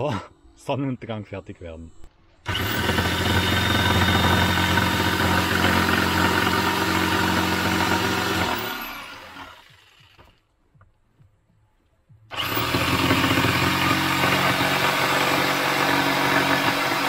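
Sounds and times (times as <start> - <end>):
electric jigsaw cutting wood: 2.5 - 10.4, 12.3 - 17.0.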